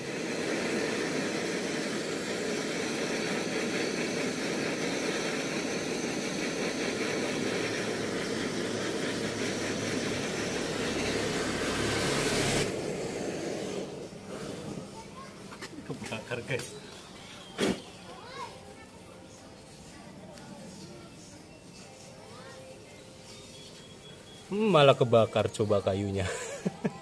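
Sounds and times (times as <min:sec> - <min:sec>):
gas torch hissing: 0:00.0 - 0:18.3.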